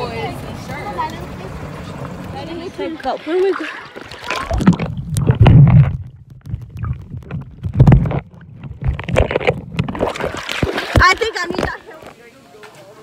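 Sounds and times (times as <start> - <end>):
underwater rumbling water and bubbles: 3.8 - 11.7
dull underwater knocks: 4.0 - 11.8.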